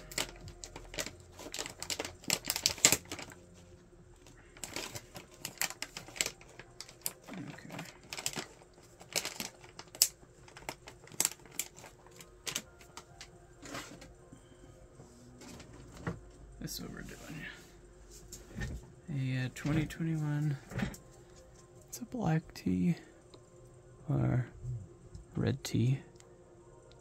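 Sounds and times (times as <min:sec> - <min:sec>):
crinkling: 0:00.0 - 0:14.1.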